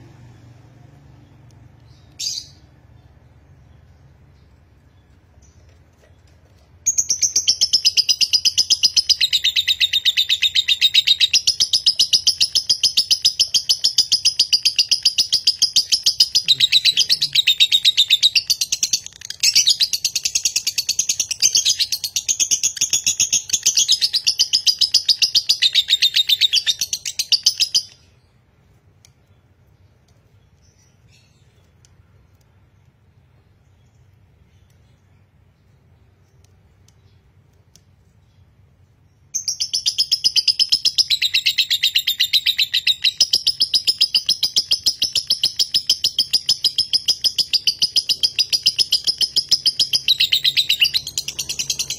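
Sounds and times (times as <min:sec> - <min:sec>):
lovebird chattering high chirps: 0:06.8 - 0:28.2, 0:39.3 - 0:51.9.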